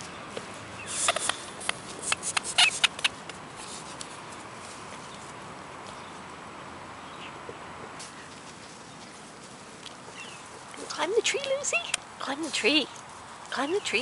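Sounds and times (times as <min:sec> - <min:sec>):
sharp rustles and clicks: 0:00.0 - 0:06.2.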